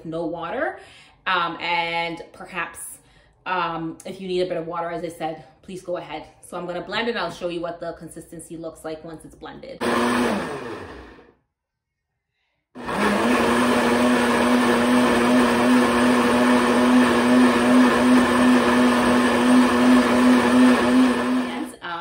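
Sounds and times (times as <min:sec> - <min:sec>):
blender running: 0:09.8 - 0:11.3, 0:12.8 - 0:21.8.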